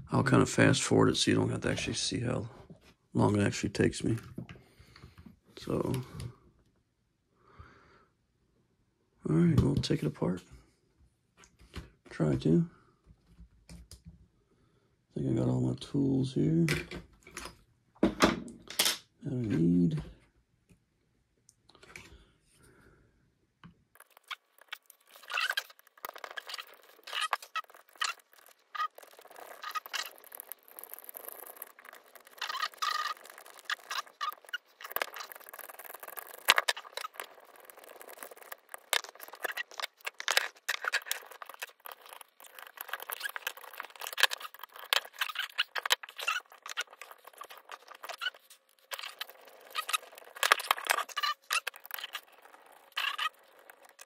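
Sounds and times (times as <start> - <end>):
hand tools clicking and scraping: 24.0 - 54.0.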